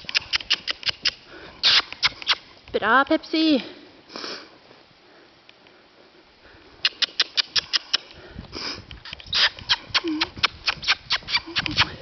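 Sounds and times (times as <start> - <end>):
tongue clicking: 0.0 - 2.4, 6.8 - 8.2, 9.1 - 12.0
short breathy noises: 3.7 - 10.4.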